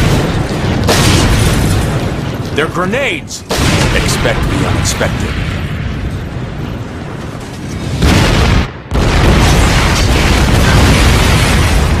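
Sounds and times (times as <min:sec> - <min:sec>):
low explosion rumble: 0:03.5 - 0:12.0.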